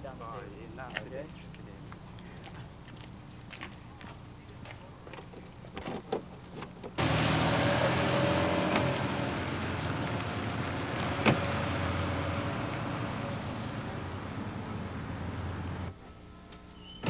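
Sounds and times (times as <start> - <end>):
car driving away: 6.9 - 15.9.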